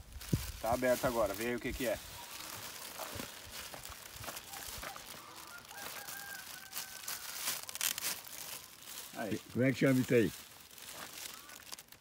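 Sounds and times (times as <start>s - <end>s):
plastic package crinkling: 0.0s - 12.0s
faint chicken calls: 2.0s - 8.7s, 10.9s - 11.8s.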